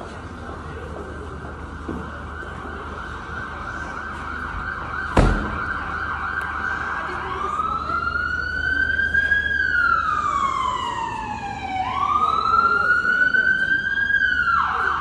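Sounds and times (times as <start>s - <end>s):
emergency siren wailing: 0.3s - 15.0s
sharp thump: 5.2s - 5.9s.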